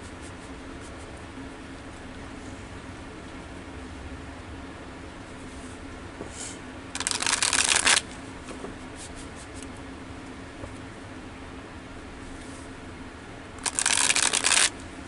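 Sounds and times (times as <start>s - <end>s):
cards riffle-shuffled: 7.0s - 8.1s, 13.6s - 14.7s.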